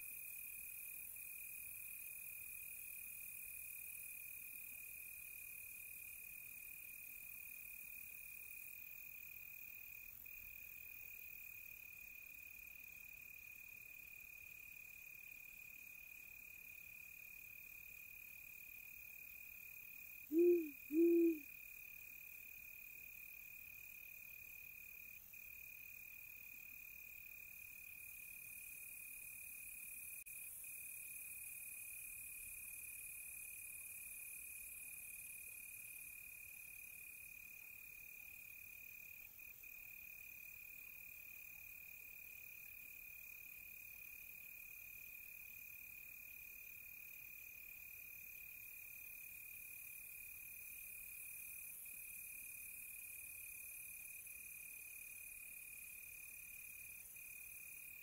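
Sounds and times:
crickets trilling: 20.3s - 21.5s
owl hoots: 20.3s - 21.5s.

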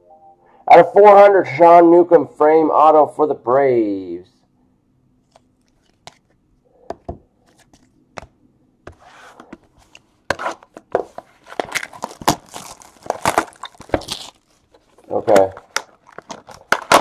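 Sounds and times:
cellophane wrap crinkling: 11.3s - 17.0s.

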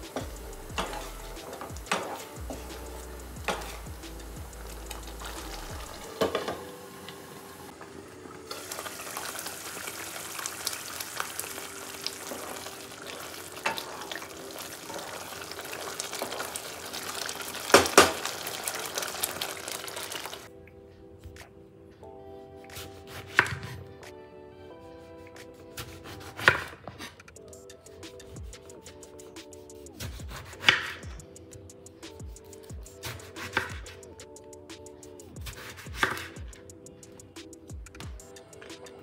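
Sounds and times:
faint background music: 0.0s - 39.0s
food sizzling in a pan: 4.9s - 20.5s.

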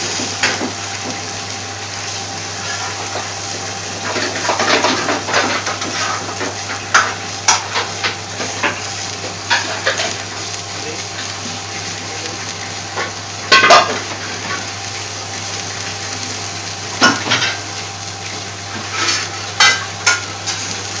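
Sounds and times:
boiling spluttering bursts: 0.0s - 21.0s
pot boiling with bubbling hiss: 0.0s - 21.0s.

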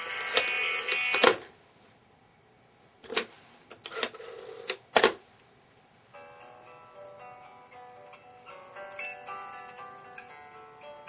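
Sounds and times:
music from a laptop: 6.2s - 11.0s.

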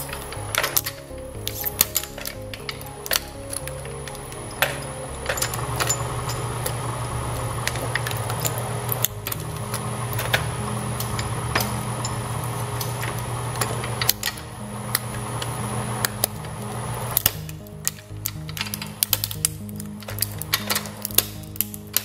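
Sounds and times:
plastic cracking and snapping: 12.7s - 22.0s.

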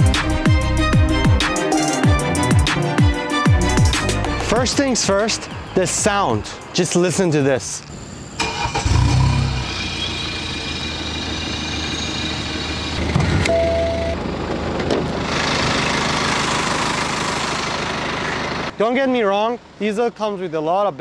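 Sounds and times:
diesel engine idling: 8.0s - 18.8s
short beep: 13.5s - 14.2s.

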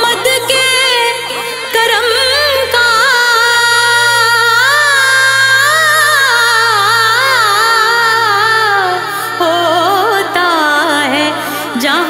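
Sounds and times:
steady low drone: 1.2s - 12.0s.

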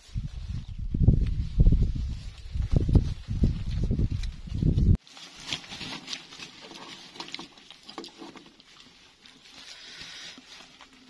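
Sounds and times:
wet squishing of rice: 5.0s - 11.0s.

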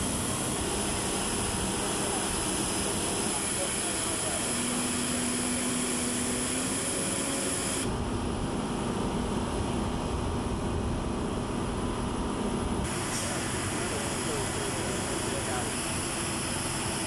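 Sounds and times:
rushing machine noise: 0.0s - 9.4s, 12.8s - 17.0s.

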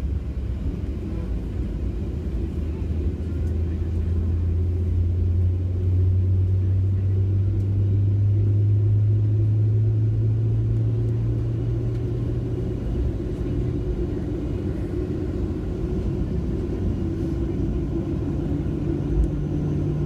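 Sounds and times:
jet engines droning: 0.0s - 20.0s
wheels rumbling on taxiway: 0.0s - 20.0s.

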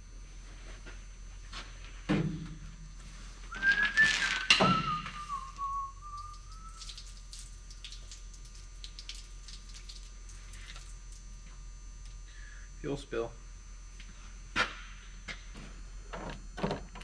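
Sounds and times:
whistle-like tone: 3.5s - 7.0s.

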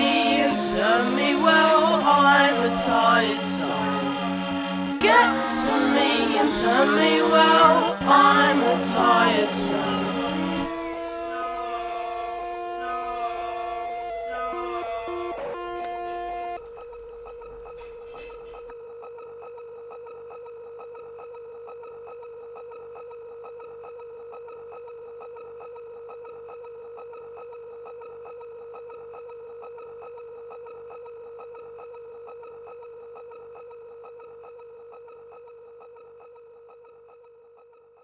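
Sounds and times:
steady electronic tone: 0.0s - 18.7s.

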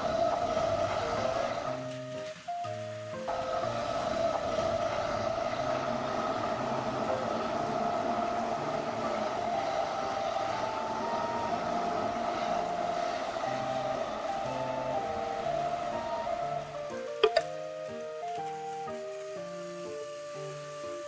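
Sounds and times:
toy train motors whining: 0.0s - 21.0s
plastic wheels rattling on track: 3.2s - 17.2s.

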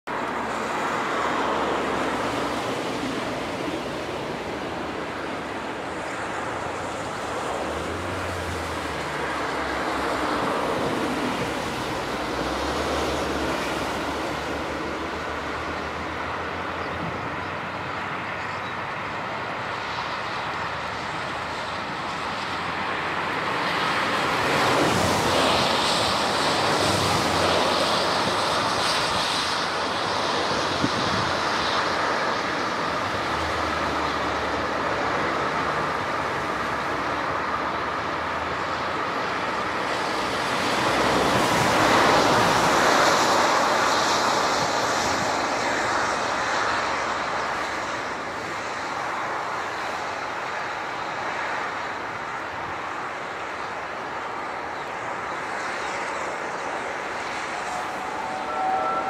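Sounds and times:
wind on microphone: 23.5s - 36.7s
steam train rushing: 56.3s - 59.0s.

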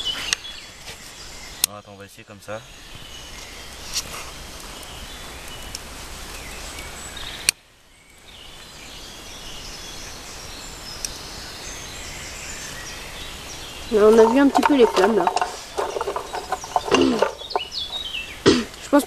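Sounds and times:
outdoor background noise: 0.0s - 19.0s
clicks and rustles of twigs: 3.3s - 7.6s, 13.9s - 19.0s.

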